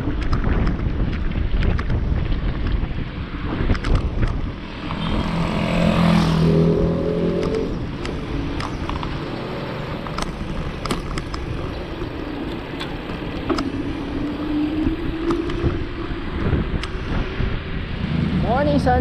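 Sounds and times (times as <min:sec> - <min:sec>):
wind rushing over microphone: 0:00.0 - 0:19.0
vehicle engine rising in pitch: 0:04.6 - 0:10.6, 0:11.6 - 0:19.0.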